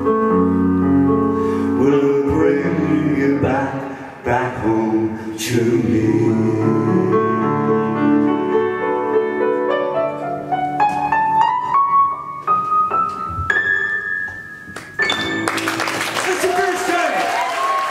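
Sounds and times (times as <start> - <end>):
solo piano: 0.0 - 16.0.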